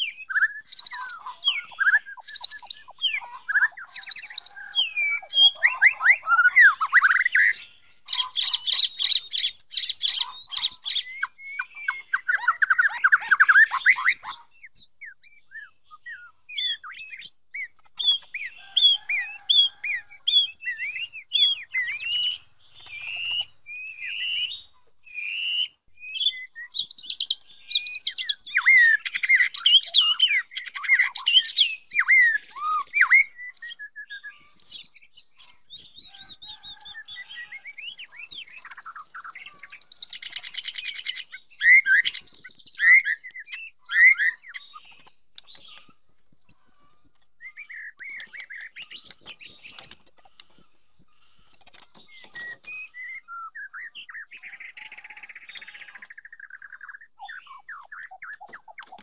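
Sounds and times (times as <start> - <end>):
bird singing whistled phrases: 0.0 - 7.6, 8.2 - 50.0, 51.0 - 58.8
harsh rapid bird rattle: 49.0 - 50.7, 51.4 - 52.5.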